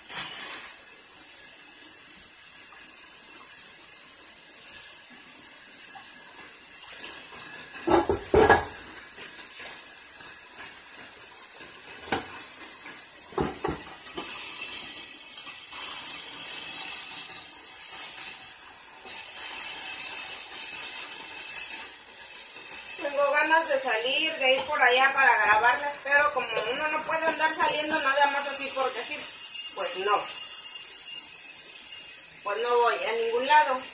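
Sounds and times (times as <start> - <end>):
steady hiss: 0.0 - 33.9
dishes and pots clattering: 7.8 - 9.1, 12.0 - 15.0.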